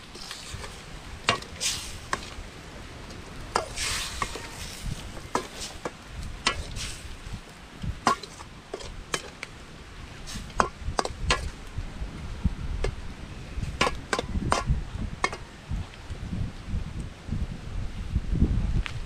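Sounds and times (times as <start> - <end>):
metal ladle scraping steel pot: 3.5 - 7.1.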